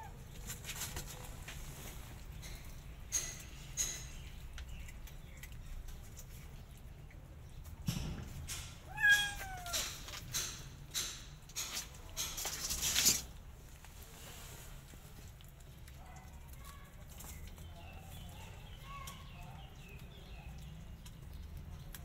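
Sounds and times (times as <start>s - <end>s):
kitten meowing: 8.9s - 9.8s.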